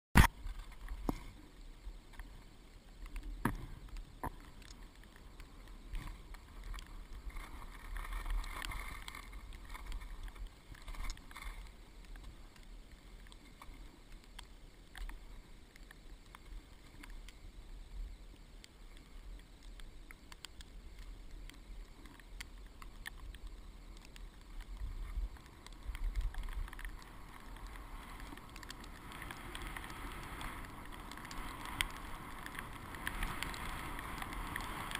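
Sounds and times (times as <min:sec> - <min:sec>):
skis scraping on snow: 0:03.2 - 0:19.6, 0:20.8 - 0:34.9
wind rumbling on camera case: 0:23.3 - 0:34.9.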